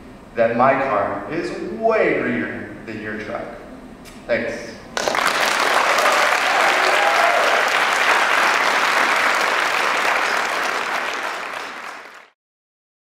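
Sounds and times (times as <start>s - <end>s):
audience applauding: 5.0s - 12.4s.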